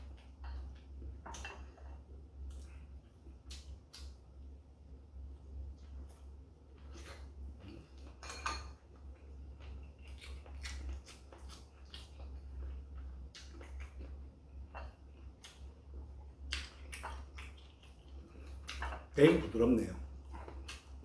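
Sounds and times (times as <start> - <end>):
low steady hum: 0.0 - 21.0
chewing: 5.8 - 19.2, 20.0 - 21.0.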